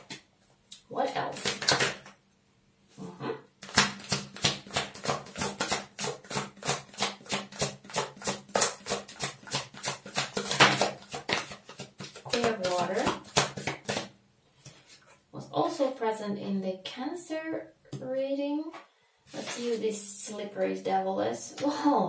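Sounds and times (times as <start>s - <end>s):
cards being shuffled by hand: 1.3s - 2.2s, 3.6s - 15.2s, 19.3s - 19.9s.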